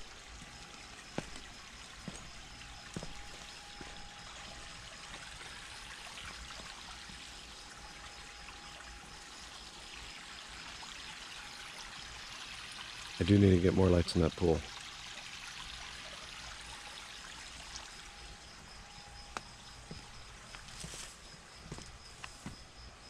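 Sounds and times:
water pouring into a pool: 0.0s - 18.4s.

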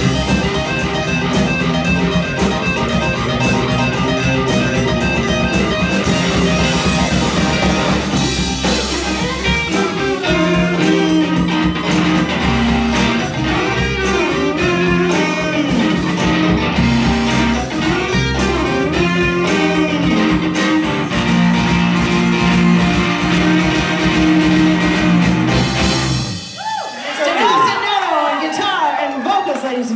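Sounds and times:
electric guitar sliding notes: 0.0s - 26.6s
blues band playing: 0.0s - 28.7s.

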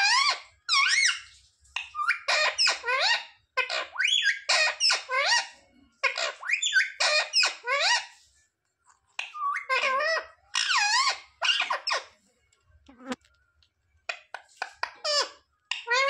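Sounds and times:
parakeet calling: 0.0s - 1.2s, 1.8s - 8.1s, 9.2s - 12.1s.

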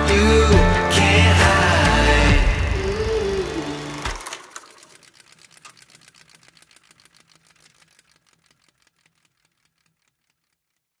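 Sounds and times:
fast even clicking: 4.0s - 11.0s.

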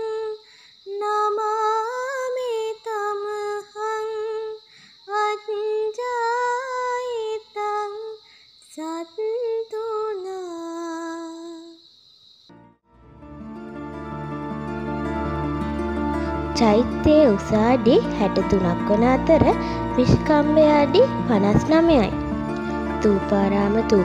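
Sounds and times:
woman chanting: 0.0s - 11.8s, 16.2s - 22.2s, 22.9s - 24.0s.

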